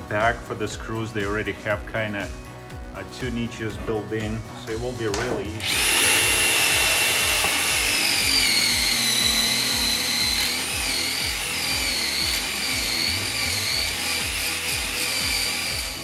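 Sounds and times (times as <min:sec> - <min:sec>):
power drill whining: 0:05.6 - 0:16.0.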